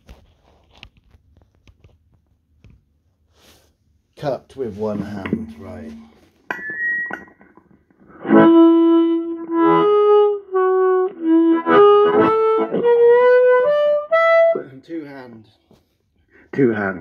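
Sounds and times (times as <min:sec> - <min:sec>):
amplified harmonica: 0:08.0 - 0:14.8.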